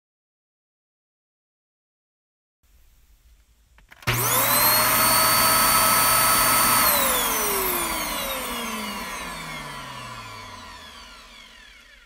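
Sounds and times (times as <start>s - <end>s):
vacuum cleaner motor whine: 4.0s - 12.0s.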